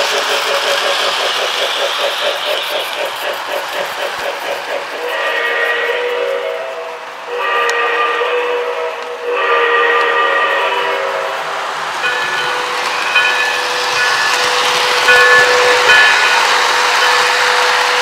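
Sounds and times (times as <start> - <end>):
steam whistle blasts: 5.0 - 11.5.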